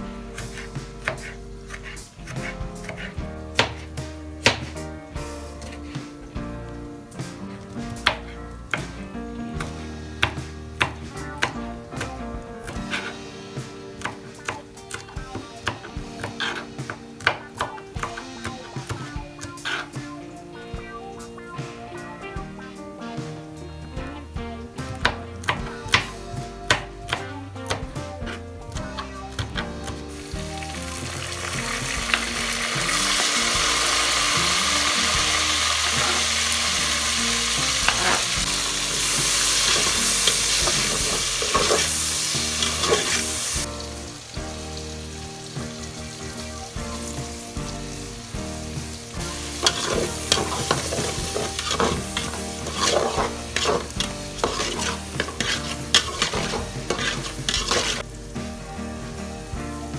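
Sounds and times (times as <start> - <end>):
masala sizzling in hot oil: 29.8 - 58.4
spoon scraping metal pot: 49.6 - 58.0.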